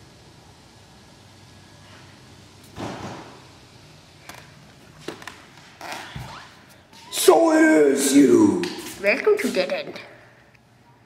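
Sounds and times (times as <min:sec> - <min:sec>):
noisy thump: 0:02.7 - 0:03.4.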